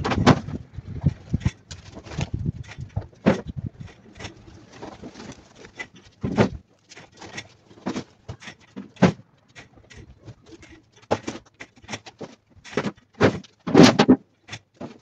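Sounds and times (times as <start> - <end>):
wooden boards knocking: 4.8 - 6.6.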